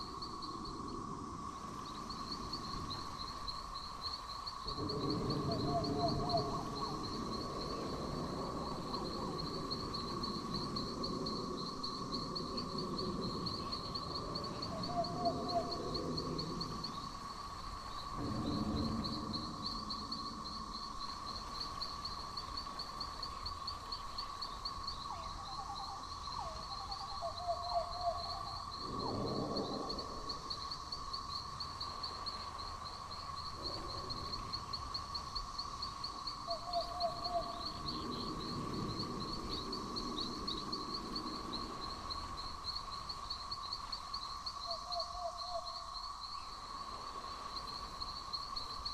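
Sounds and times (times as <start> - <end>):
crickets chirping chorus: 0.0 - 48.9
steady low drone: 4.7 - 9.6, 18.2 - 21.6
soft low rumbles: 17.9 - 22.5.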